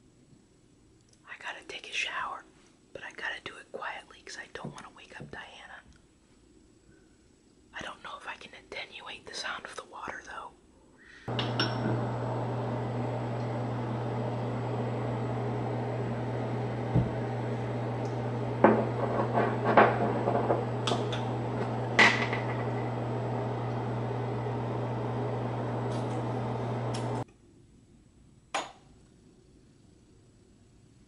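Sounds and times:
exhaust fan humming: 11.3 - 27.2.

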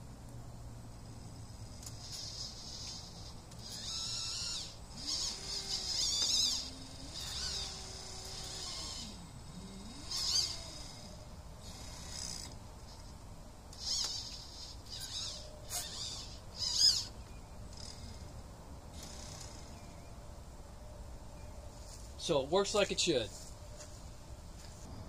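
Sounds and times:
electric motor whirring: 1.6 - 13.0, 13.7 - 20.0
high-pitched chirping: 13.8 - 17.5.

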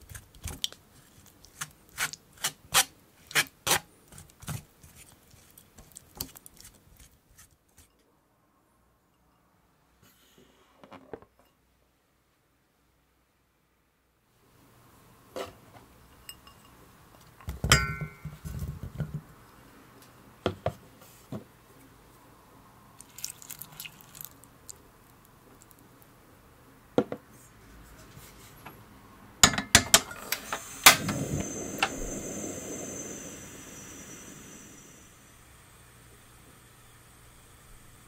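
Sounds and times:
water pouring: 23.0 - 24.5
gas burner hissing: 30.0 - 38.0.

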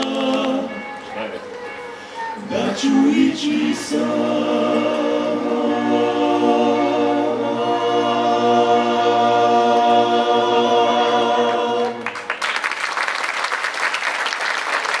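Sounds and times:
vocal group singing in harmony: 0.0 - 1.1, 2.3 - 12.2
audience applause: 11.8 - 15.0.

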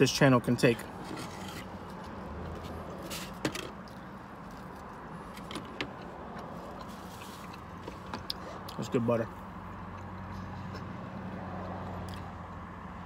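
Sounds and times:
person chewing bread: 3.8 - 8.8, 12.0 - 12.3.

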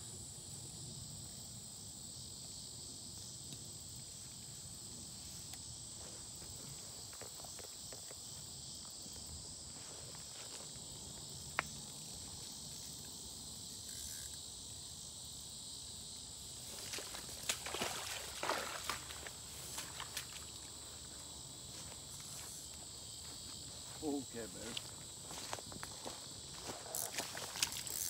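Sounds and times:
insects buzzing: 0.0 - 28.0
footsteps through grass: 16.6 - 28.0.

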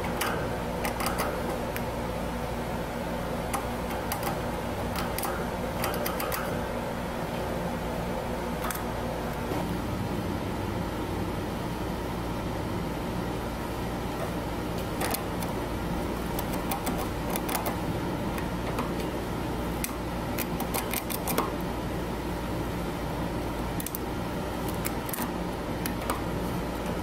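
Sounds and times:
steady background hum: 0.0 - 27.0
chinchilla gnawing wood: 19.8 - 21.5.

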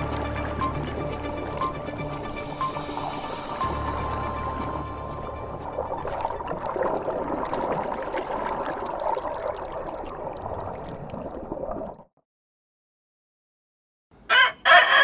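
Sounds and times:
underwater rushing bubbling water: 0.0 - 12.1
dolphin whistles: 6.7 - 7.4, 8.6 - 9.2.

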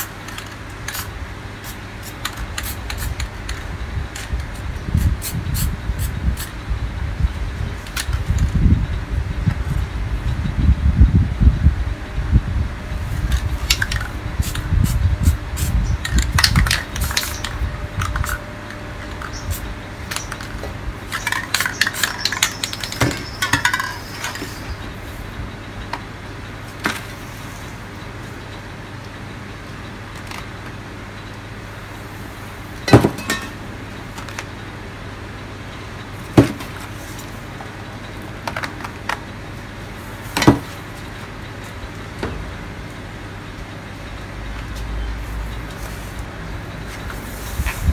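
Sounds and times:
spray cans clinking and knocking: 16.0 - 18.4, 20.1 - 24.6, 32.9 - 33.6.

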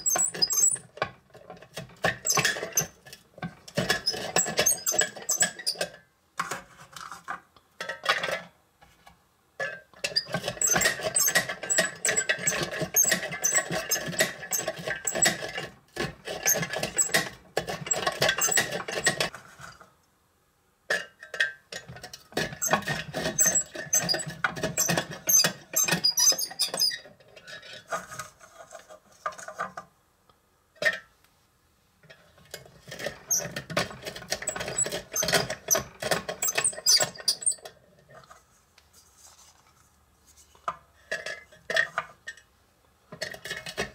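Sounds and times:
crank squeaking: 0.0 - 0.9, 3.8 - 5.8, 10.2 - 15.6, 16.3 - 19.3, 22.5 - 27.0, 33.0 - 37.6.

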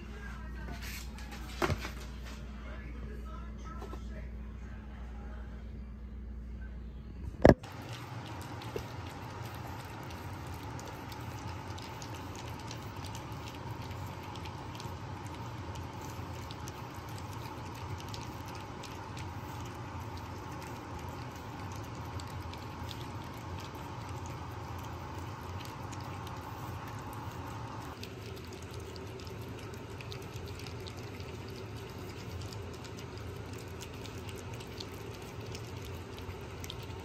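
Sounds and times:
steady low hum: 0.0 - 37.0
puppies lapping wet food: 7.6 - 37.0.

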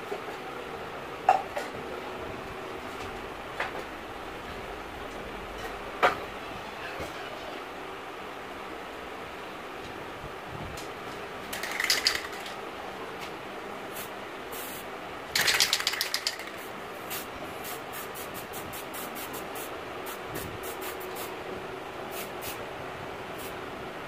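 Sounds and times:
spray paint can hissing: 11.6 - 12.5, 13.9 - 14.8, 15.4 - 21.3, 22.1 - 22.6.

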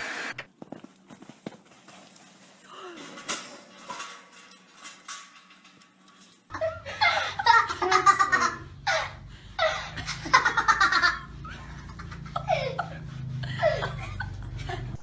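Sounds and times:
people laughing: 6.5 - 15.0.

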